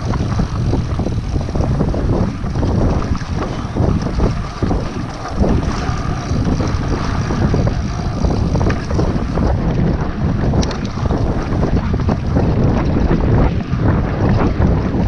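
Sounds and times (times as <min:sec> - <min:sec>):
bike knocks and rattles: 0:00.0 - 0:15.0
wind buffeting microphone: 0:00.0 - 0:15.0.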